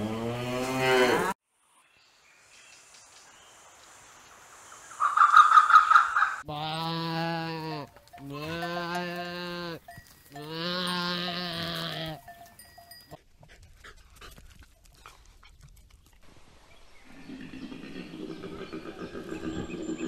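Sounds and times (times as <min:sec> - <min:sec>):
sheep bleating: 0:06.5 - 0:12.3.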